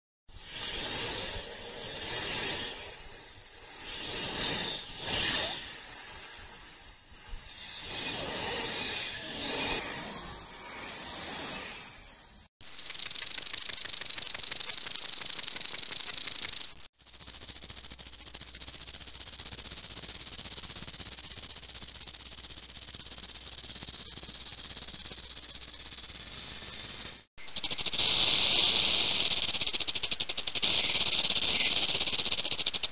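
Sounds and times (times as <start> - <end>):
snake hissing: 0.3 - 32.8.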